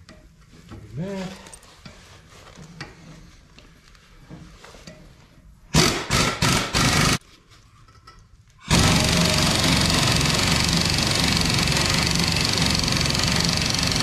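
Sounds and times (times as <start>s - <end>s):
impact wrench hammering: 5.8s - 7.2s, 8.7s - 14.0s.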